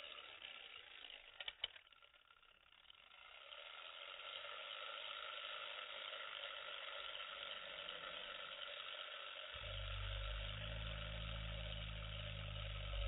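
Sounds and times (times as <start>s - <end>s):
small fan whirring: 0.0s - 13.0s.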